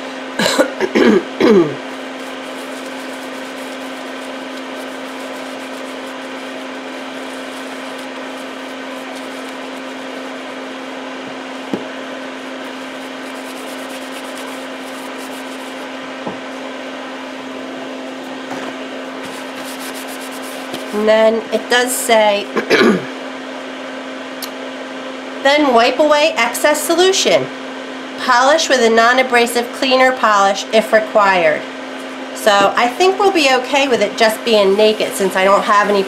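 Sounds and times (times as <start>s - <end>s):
motor hum: 0.0s - 21.7s
paper towel rustling: 1.8s - 21.1s, 33.0s - 36.0s.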